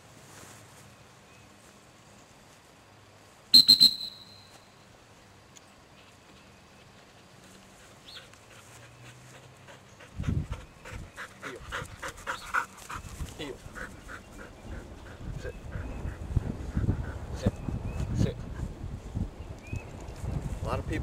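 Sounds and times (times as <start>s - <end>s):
whistle trill of high peeps: 3.5s - 4.6s
dog breathing rapidly: 7.8s - 17.4s.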